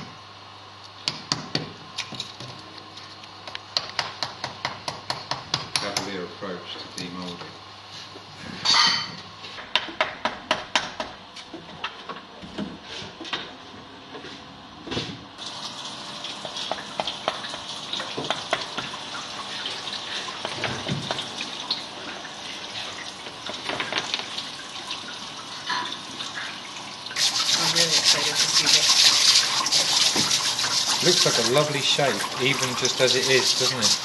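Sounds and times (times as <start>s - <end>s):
running water hissing: 26.3s - 34.0s.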